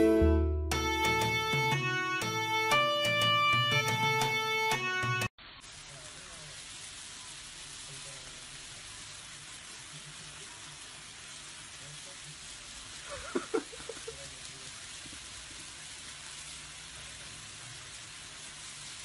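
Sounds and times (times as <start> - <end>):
meat sizzling on a grill: 5.4 - 19.0.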